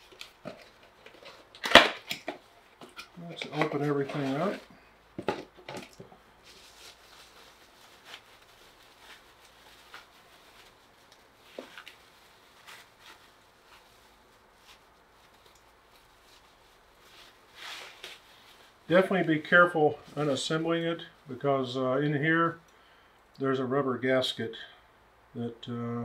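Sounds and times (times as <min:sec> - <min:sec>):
plastic bag rustling and crinkling: 0:03.2 - 0:21.2.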